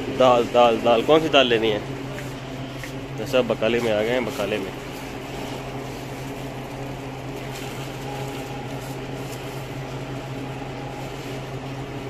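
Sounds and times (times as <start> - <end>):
mechanical hum of equipment: 0.0 - 12.0
plastic bags crinkling: 3.2 - 12.0.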